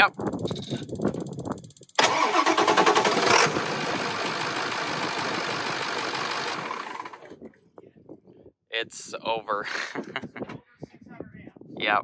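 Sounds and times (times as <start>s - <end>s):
engine starter cranking: 0.2s - 7.3s
diesel engine idling: 2.0s - 7.3s.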